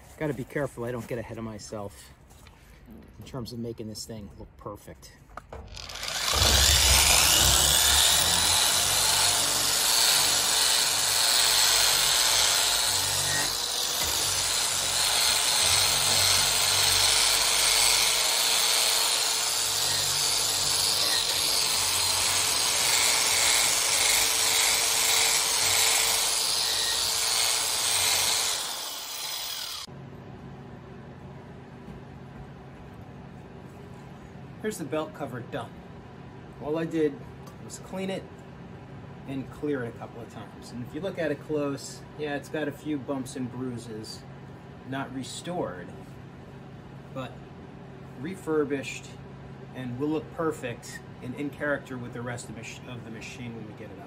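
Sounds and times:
abrasive drum grinding steel: 0:05.6 - 0:08.9
grinding tool whining: 0:05.6 - 0:29.9.

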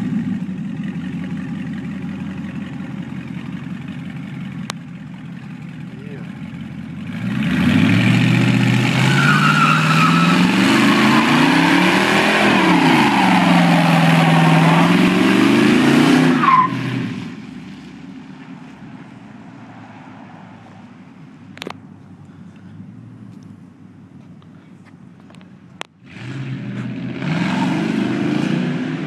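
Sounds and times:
car engine revving: 0:06.4 - 0:17.6, 0:26.0 - 0:29.0
tyres squealing on pavement: 0:08.7 - 0:17.4.

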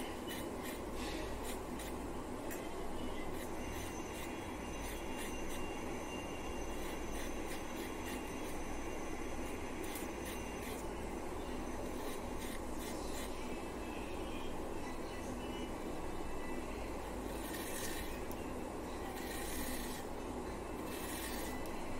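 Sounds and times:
knife scraping potato: 0:00.0 - 0:02.1, 0:03.1 - 0:11.0, 0:11.6 - 0:13.6, 0:17.3 - 0:18.3, 0:19.0 - 0:20.1, 0:20.8 - 0:21.9
low rumbling background noise: 0:00.0 - 0:21.9.

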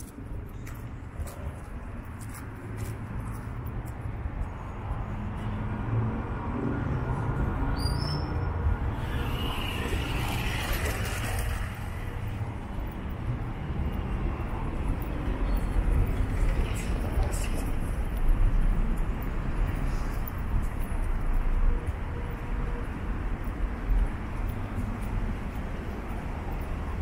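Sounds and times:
low rumble of cars: 0:00.0 - 0:27.0
vehicle passing: 0:08.5 - 0:20.5.

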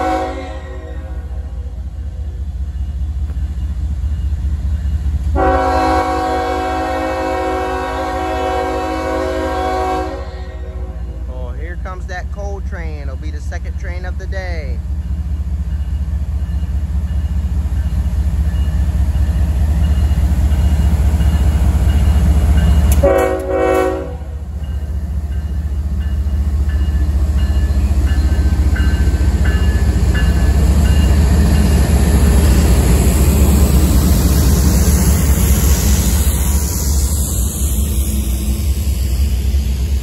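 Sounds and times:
train horn blast: 0:00.0 - 0:01.5, 0:05.3 - 0:11.2, 0:22.9 - 0:24.4
diesel locomotive engines rumbling: 0:00.0 - 0:40.0.

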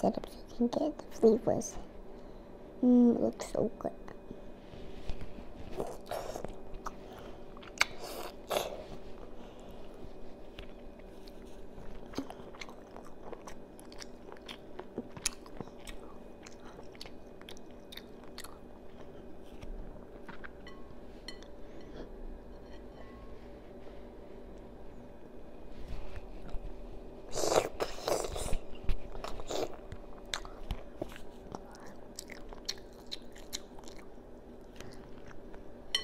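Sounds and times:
faint steady hum: 0:00.0 - 0:36.0
child chewing with wet smacks: 0:05.1 - 0:20.6, 0:27.3 - 0:35.7.

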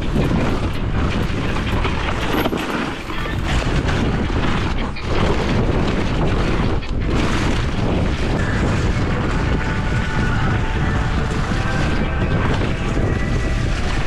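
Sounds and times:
tyres rumbling on rough ground: 0:00.0 - 0:14.0
wind buffeting microphone: 0:00.0 - 0:14.0.

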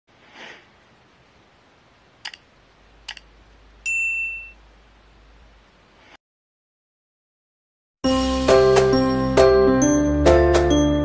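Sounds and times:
bright bell ding: 0:03.9 - 0:04.6.

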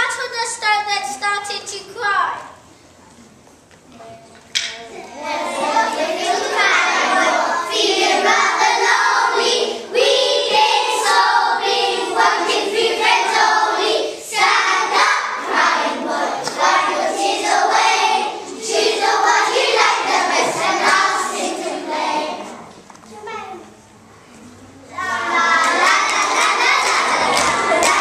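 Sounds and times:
children singing in unison: 0:05.2 - 0:22.7, 0:24.9 - 0:28.0.

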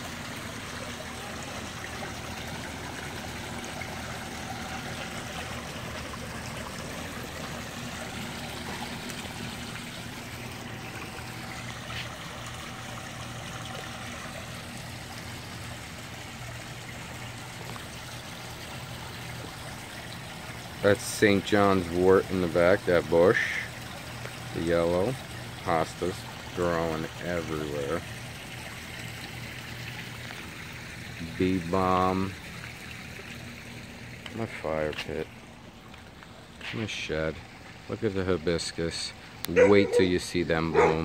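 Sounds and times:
waterfall trickling and splashing: 0:00.0 - 0:41.0.

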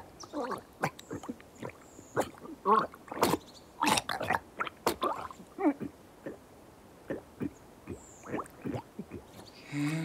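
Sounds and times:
man choking and gurgling: 0:00.4 - 0:06.4, 0:07.1 - 0:10.0.

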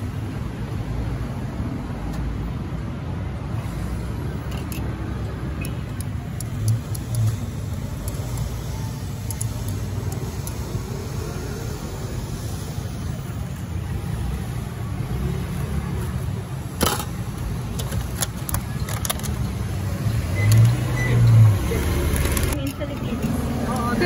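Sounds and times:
street traffic rumble: 0:00.0 - 0:24.0
tongs and plastic boxes clicking: 0:16.8 - 0:19.5.

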